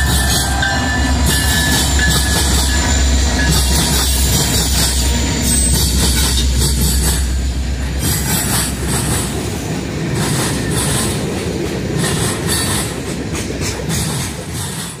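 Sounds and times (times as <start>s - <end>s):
high-pitched wheel squeal: 0.0s - 7.0s
diesel locomotive engine drone: 0.0s - 15.0s.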